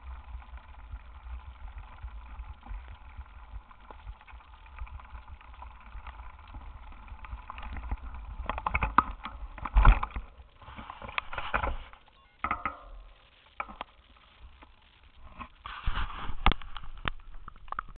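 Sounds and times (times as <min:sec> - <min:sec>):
camera rattling and knocking: 0:04.7 - 0:13.0.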